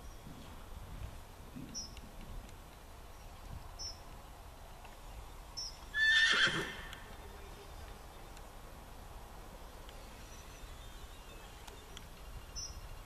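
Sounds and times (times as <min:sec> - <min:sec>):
horse neighing: 0:06.0 - 0:06.9.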